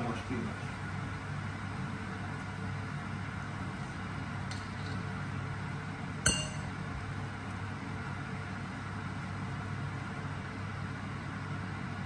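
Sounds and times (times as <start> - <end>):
steady low hum: 0.0 - 12.0
frying pan clinking glass bowl: 6.3 - 6.8.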